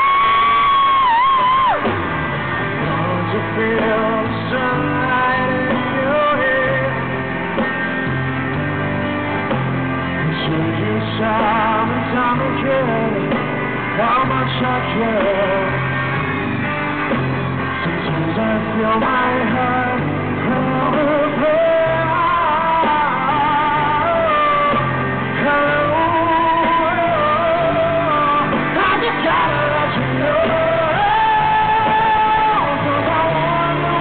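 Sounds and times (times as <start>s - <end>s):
electric guitar: 0.0s - 34.0s
live rock band playing: 0.0s - 34.0s
person singing: 2.7s - 7.3s, 10.2s - 16.0s, 17.8s - 34.0s.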